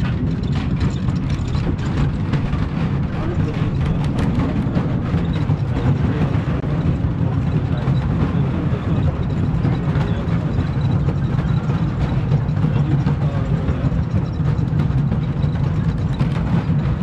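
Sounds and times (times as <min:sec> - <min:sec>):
roller coaster wheels rumbling on rails: 0:00.0 - 0:17.0.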